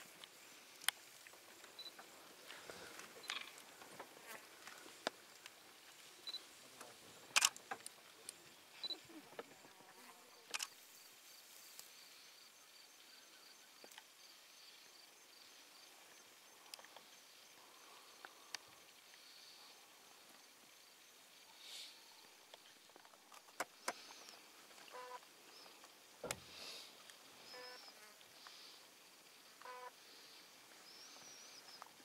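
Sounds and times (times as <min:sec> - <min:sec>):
bush ambience: 0:00.0 - 0:32.0
faint high-pitched chirp: 0:06.2 - 0:06.5, 0:08.8 - 0:09.2, 0:27.4 - 0:28.0.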